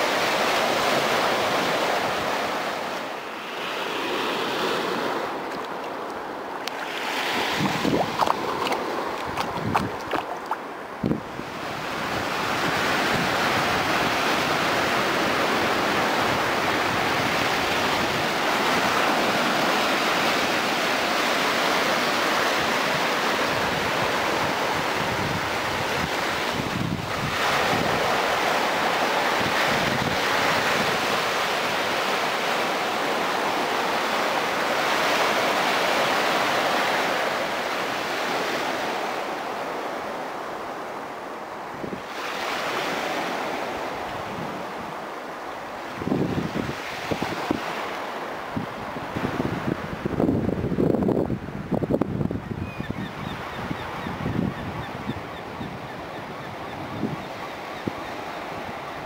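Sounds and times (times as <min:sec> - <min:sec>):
sea surf washing on shore: 0:00.0 - 0:59.0
wind buffeting microphone: 0:07.1 - 0:14.8, 0:23.5 - 0:28.4, 0:48.6 - 0:58.9.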